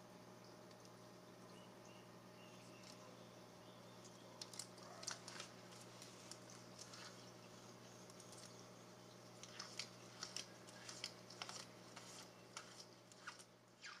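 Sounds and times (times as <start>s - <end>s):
claws scratching on window screen: 4.3s - 14.0s.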